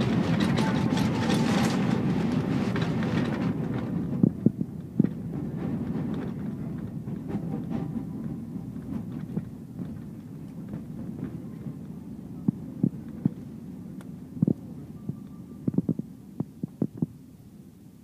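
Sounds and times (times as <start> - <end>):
airliner cabin rumble: 0.0 - 18.0.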